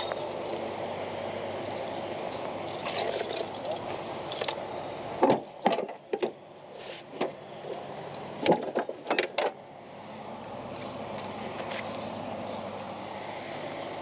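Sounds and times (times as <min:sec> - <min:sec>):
engine humming: 0:00.0 - 0:14.0.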